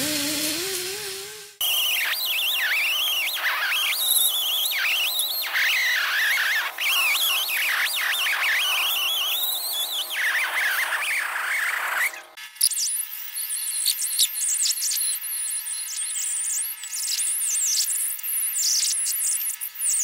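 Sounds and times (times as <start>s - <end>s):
die grinder whining: 0.0s - 14.2s.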